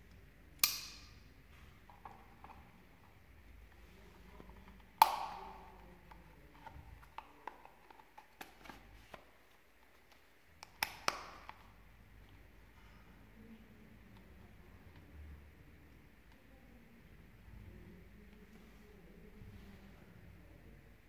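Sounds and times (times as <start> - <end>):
sheath snap clicking shut: 0.6 - 1.1.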